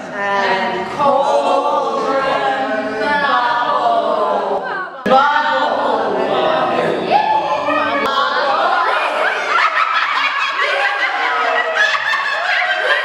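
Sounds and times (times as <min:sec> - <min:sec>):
group singing a cappella: 0:00.0 - 0:09.2.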